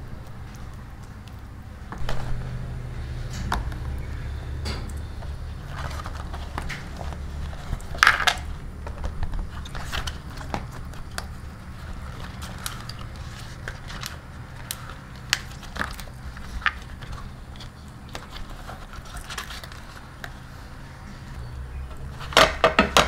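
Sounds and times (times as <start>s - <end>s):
steady low hum: 0.0s - 22.8s
banana leaf rustling: 0.0s - 23.0s.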